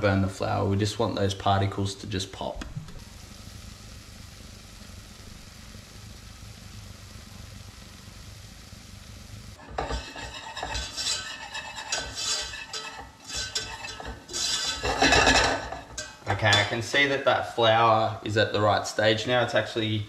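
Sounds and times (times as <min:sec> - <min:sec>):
roux sizzling in a saucepan: 0:00.4 - 0:20.0
whisk scraping a pan: 0:09.6 - 0:16.8.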